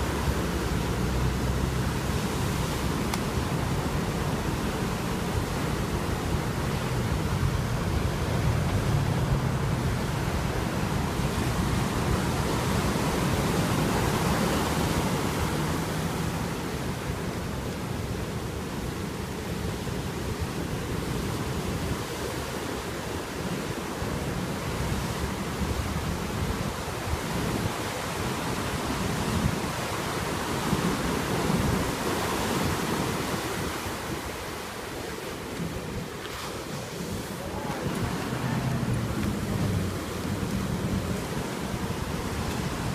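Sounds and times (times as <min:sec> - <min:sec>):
waves breaking: 0:00.0 - 0:42.9
whitewater washing up sand: 0:00.0 - 0:42.9.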